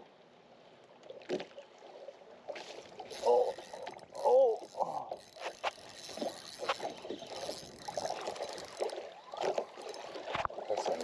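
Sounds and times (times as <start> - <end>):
waves lapping against a boat hull: 0.0 - 11.0.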